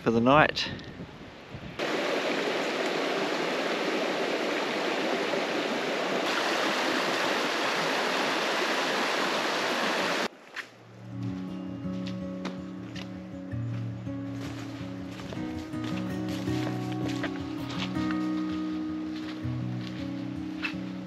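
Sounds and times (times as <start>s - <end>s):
stream running water: 1.8s - 11.1s
music: 11.0s - 21.0s.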